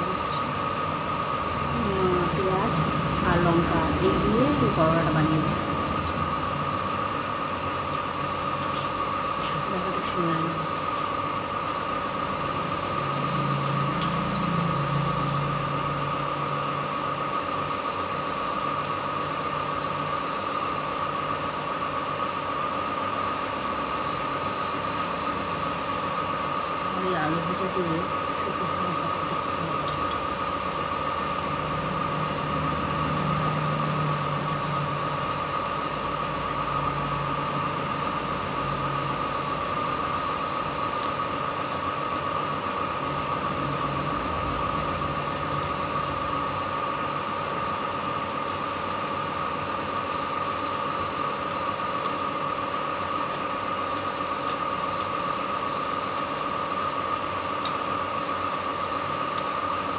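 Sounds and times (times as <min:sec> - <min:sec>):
low drone: 0:00.0 - 0:11.0, 0:11.9 - 0:17.2
machine hum with high whine: 0:00.0 - 0:59.9.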